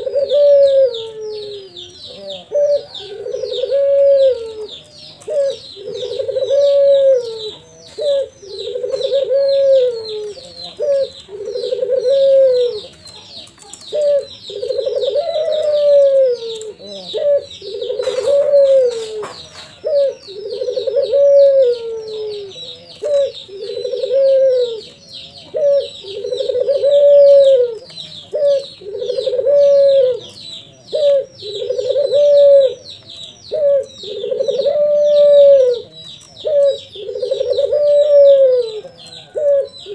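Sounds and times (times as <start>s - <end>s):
dove cooing: 0.0s - 39.9s
small birds chirping: 0.0s - 39.9s.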